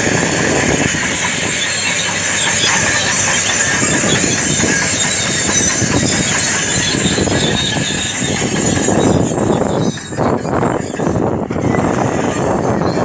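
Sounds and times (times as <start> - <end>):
bulldozer engine running: 0.0 - 13.0
steel tracks rattling: 0.0 - 13.0.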